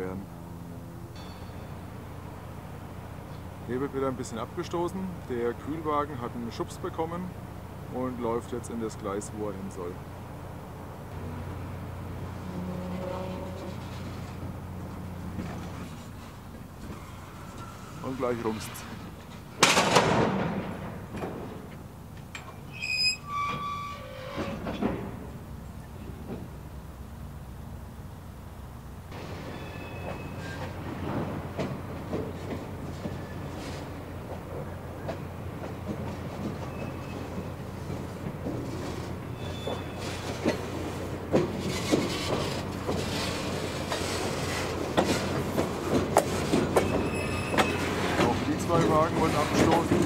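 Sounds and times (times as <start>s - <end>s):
rattling rumble of cars: 0.0s - 50.0s
high metallic squeals: 16.9s - 18.9s, 22.6s - 24.7s, 29.5s - 30.8s, 39.3s - 40.2s, 46.8s - 48.0s
wheels clacking and knocking: 30.0s - 50.0s.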